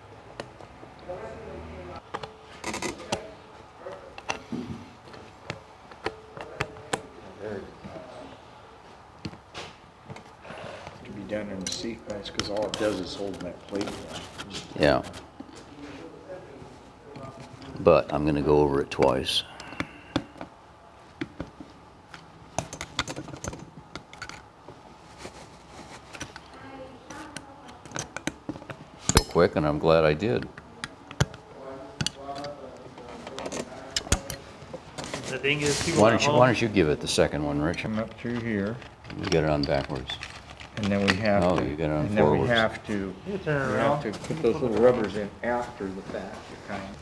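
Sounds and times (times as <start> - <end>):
plastic and metal parts clicking: 27.1 - 29.3.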